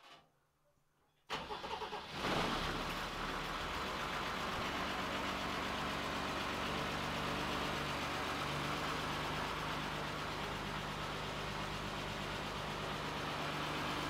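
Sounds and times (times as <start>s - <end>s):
diesel engine idling: 3.0s - 14.0s.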